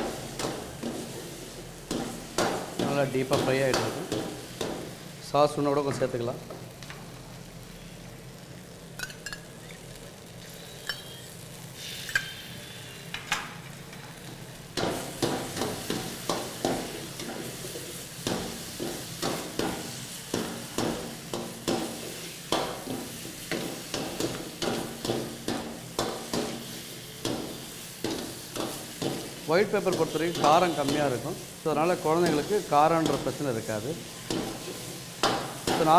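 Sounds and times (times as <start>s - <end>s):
food sizzling: 0.0s - 35.9s.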